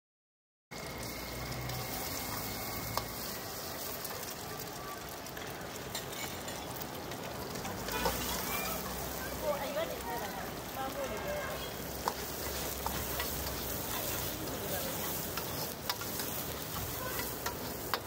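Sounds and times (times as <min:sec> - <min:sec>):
fried rice sizzling in a wok: 0:00.7 - 0:18.0
stirring clicks: 0:10.2 - 0:18.0.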